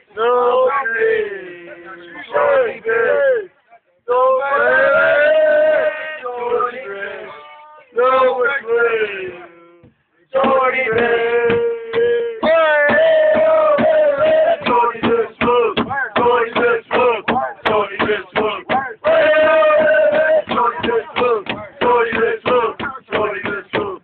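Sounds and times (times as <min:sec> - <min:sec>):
men chanting a song: 0:10.3 - 0:24.0.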